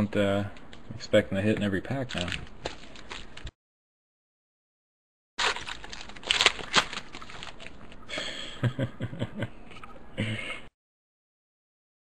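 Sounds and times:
cards clicking and rustling: 0:02.0 - 0:03.5, 0:05.4 - 0:08.0
foil wrapper crinkling: 0:02.0 - 0:03.5, 0:05.4 - 0:08.1.

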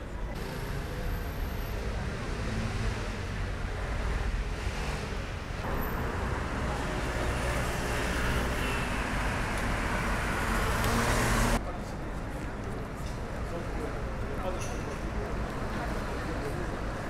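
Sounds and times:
cars passing: 0:00.4 - 0:11.6.

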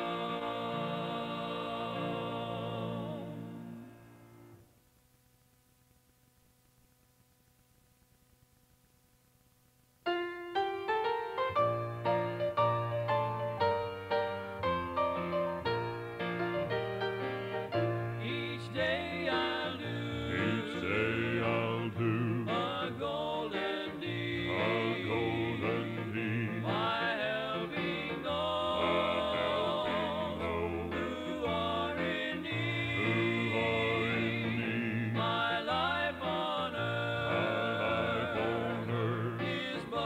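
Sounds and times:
gospel group singing: 0:00.0 - 0:04.0, 0:17.7 - 0:40.0
instrumental accompaniment: 0:10.1 - 0:19.7.

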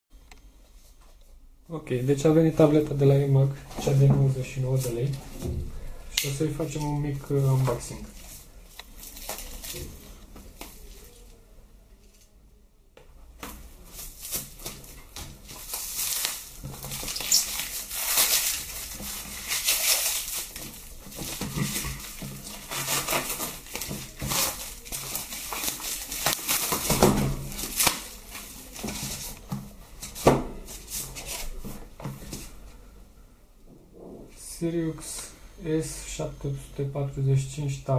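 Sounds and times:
plastic film crinkling and tearing: 0:06.2 - 0:11.3, 0:13.8 - 0:31.7
knife slitting plastic film: 0:14.0 - 0:29.4.

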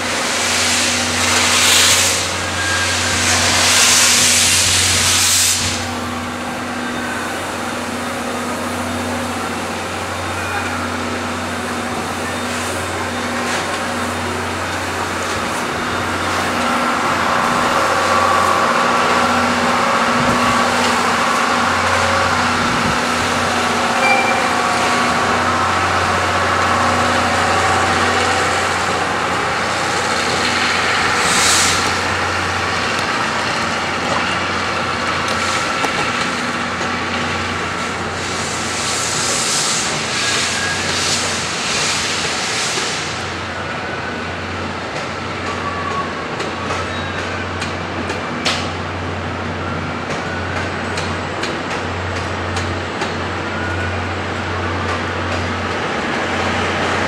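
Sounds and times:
steam hissing: 0:00.0 - 0:08.4, 0:09.2 - 0:36.6, 0:37.3 - 0:44.4.

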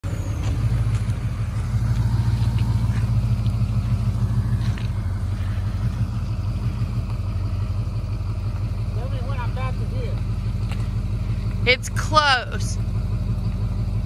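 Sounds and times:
truck engine rumbling under load: 0:00.0 - 0:14.0.

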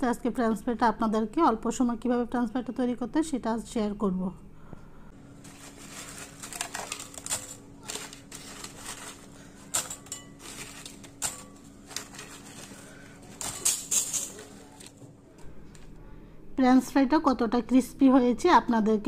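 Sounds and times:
faint steady hum: 0:00.0 - 0:19.0
crispy fries rattling: 0:05.3 - 0:15.0.

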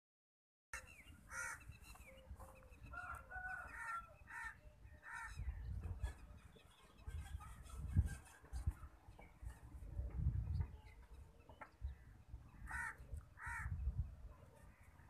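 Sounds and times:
chickens clucking: 0:05.3 - 0:11.9.

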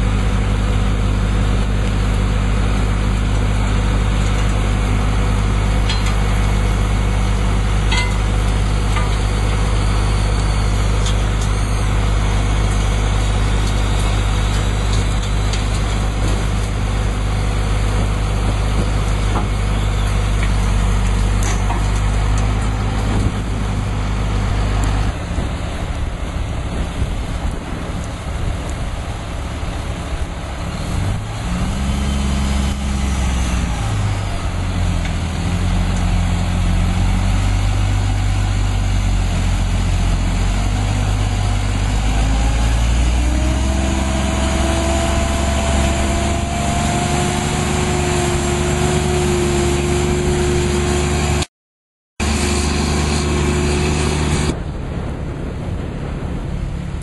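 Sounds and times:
diesel truck engine running: 0:00.0 - 0:51.5, 0:52.2 - 0:57.0
rising whine: 0:00.0 - 0:51.5, 0:52.2 - 0:55.6.

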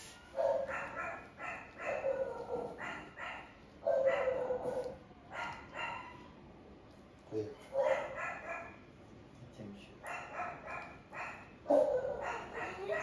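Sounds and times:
puppy yelping and crying: 0:00.3 - 0:06.3, 0:10.1 - 0:13.0.

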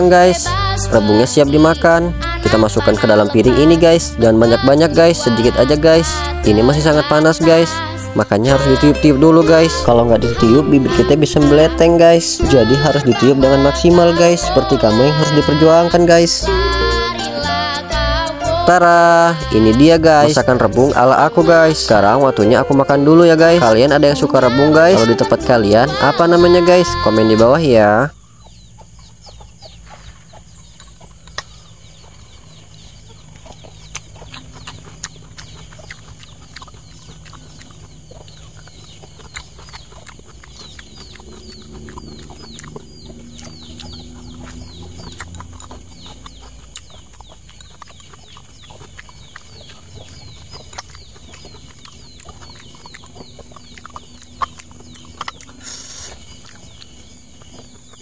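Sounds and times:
birds chirping: 0:00.0 - 0:58.0
chewing: 0:00.0 - 0:58.0.

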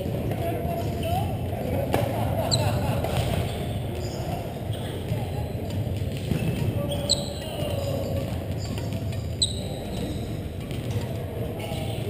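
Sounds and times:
gym hall low hum: 0:00.0 - 0:12.0
shoes squeaking on floor: 0:02.5 - 0:12.0.

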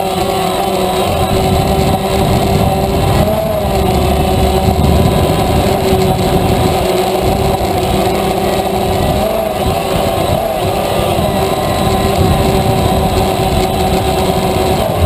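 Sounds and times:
drone propellers whining: 0:00.0 - 0:15.0
wind rumble on microphone: 0:00.0 - 0:15.0.

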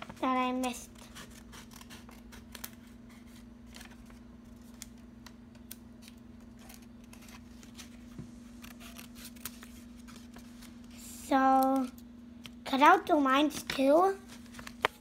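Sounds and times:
steady low hum: 0:00.0 - 0:15.0
scissors snipping paper: 0:00.6 - 0:03.0, 0:08.6 - 0:09.8.

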